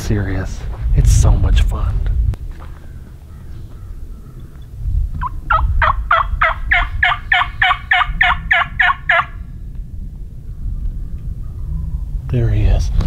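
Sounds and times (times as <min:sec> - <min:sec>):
turkey yelping: 0:05.2 - 0:09.4.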